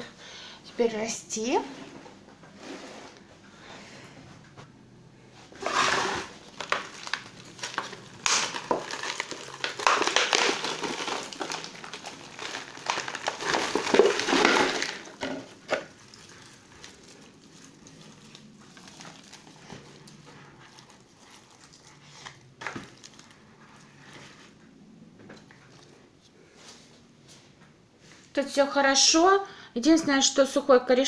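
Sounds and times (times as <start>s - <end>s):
thin plastic pot crinkling: 5.6s - 24.6s.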